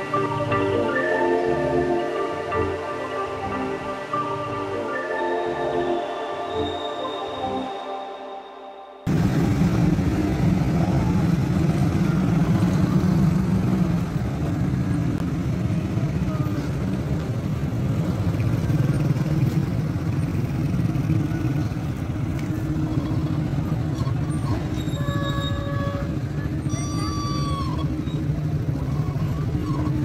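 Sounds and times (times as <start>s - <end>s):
motorcycles passing: 9.1s - 30.0s.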